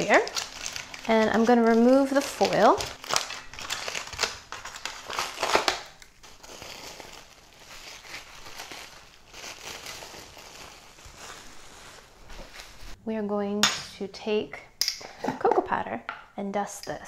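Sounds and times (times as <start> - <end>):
foil and cling wrap crinkling: 0.0 - 13.0.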